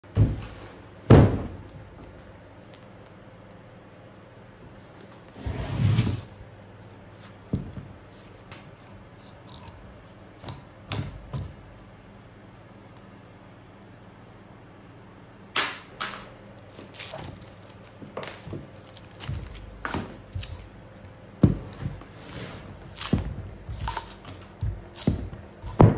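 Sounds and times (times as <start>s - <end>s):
log thumping on workbench: 1.1s - 1.6s, 24.6s - 25.9s.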